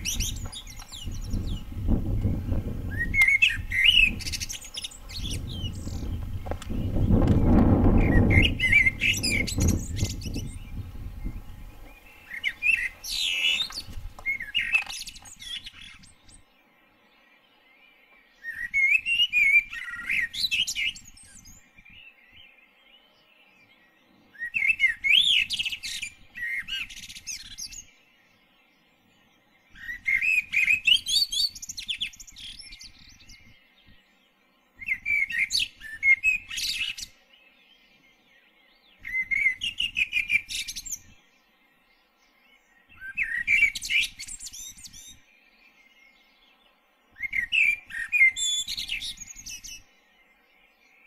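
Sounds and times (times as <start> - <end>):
songbird warbling: 0.0 - 16.4, 42.3 - 51.0.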